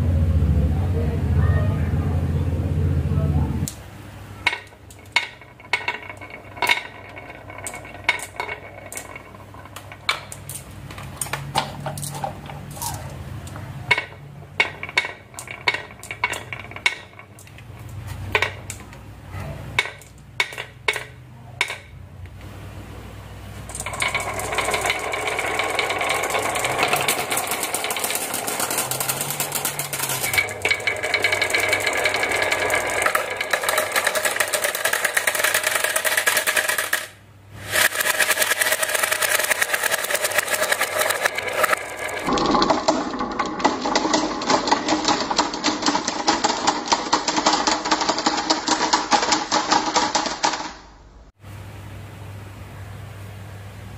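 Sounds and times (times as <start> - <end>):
marbles clicking on wood: 4.4 - 19.0, 19.8 - 21.9, 23.7 - 50.8
marbles rolling and rattling: 4.4 - 19.0, 19.7 - 21.9, 23.6 - 50.8
marbles spilling into plastic bucket: 4.5 - 11.0, 23.7 - 50.6.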